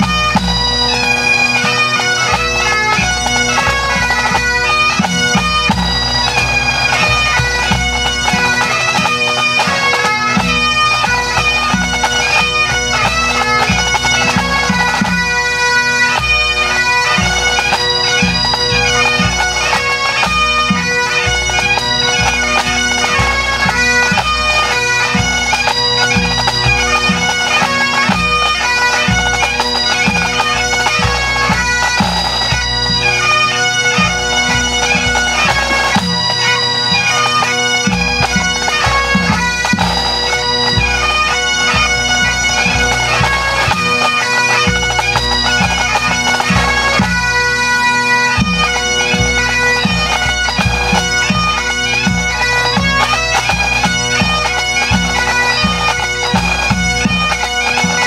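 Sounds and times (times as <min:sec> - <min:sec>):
drums beating in time: 0:00.0 - 0:15.5
bagpipes playing: 0:00.0 - 0:58.0.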